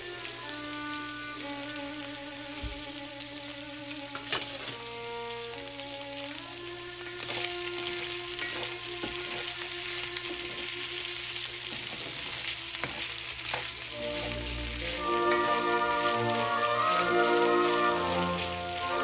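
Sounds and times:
background music: 0.0s - 12.8s, 13.8s - 19.0s
food sizzling in a skillet: 0.0s - 19.0s.

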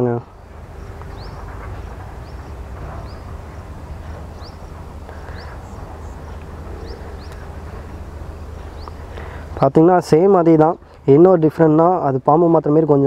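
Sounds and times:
steady low rumble: 0.0s - 12.6s
small bird chirping: 0.8s - 9.4s.

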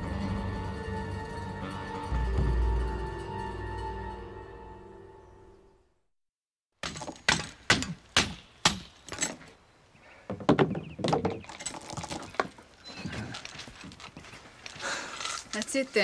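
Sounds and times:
sharp knocks and cracks: 6.8s - 9.6s, 10.3s - 12.6s.

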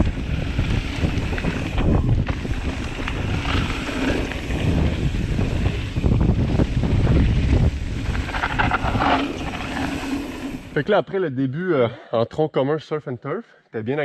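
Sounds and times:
wind buffeting microphone: 0.0s - 10.8s
tyres rumbling on dirt: 0.0s - 11.0s.

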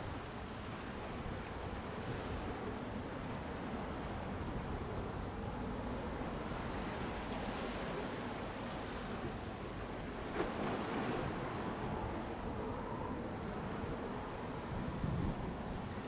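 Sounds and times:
sea waves: 0.0s - 16.0s
wind on microphone: 10.6s - 16.0s.

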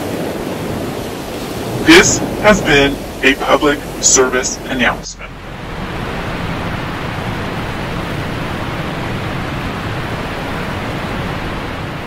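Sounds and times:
water rushing: 0.0s - 12.0s.

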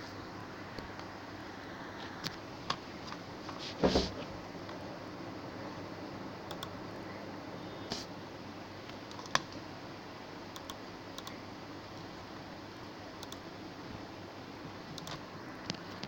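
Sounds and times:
computer fan noise: 0.0s - 16.0s
faint clicks: 6.5s - 6.8s, 10.6s - 11.4s, 13.2s - 13.4s.

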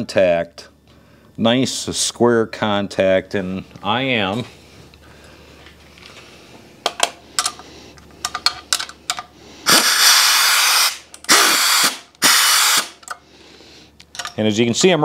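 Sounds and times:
air impact wrench bursts: 9.6s - 13.0s.

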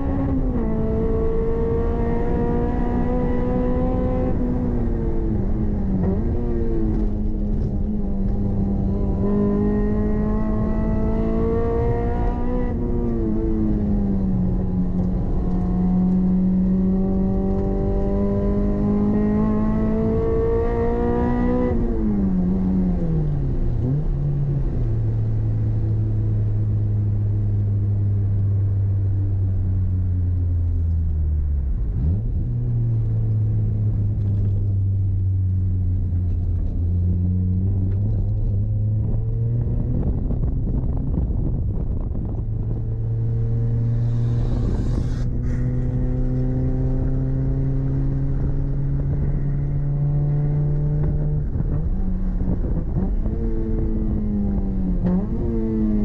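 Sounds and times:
car engine revving from cabin: 0.0s - 23.2s, 42.2s - 56.0s.

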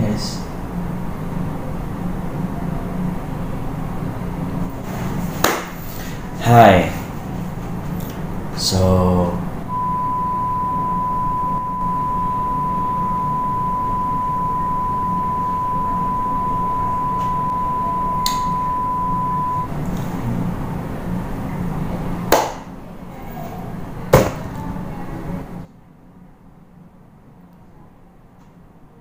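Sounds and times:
low background hum: 0.0s - 29.0s
high electronic beep tone: 9.7s - 19.7s.

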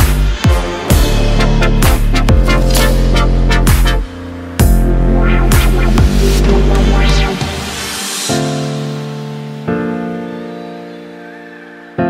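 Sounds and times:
downward-sweeping bass hits: 0.0s - 9.0s
electronic music with heavy bass: 0.0s - 10.0s.

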